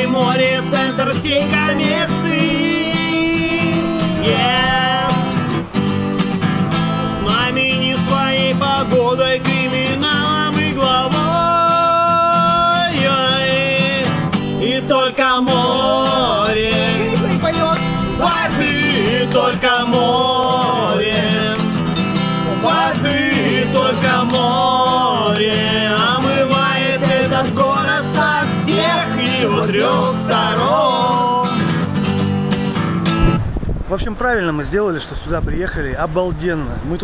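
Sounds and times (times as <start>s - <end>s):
man singing: 0.0s - 5.6s, 6.6s - 21.8s, 22.4s - 31.6s
acoustic guitar: 0.0s - 34.0s
woman singing: 1.2s - 5.4s, 14.6s - 21.5s, 22.5s - 31.2s.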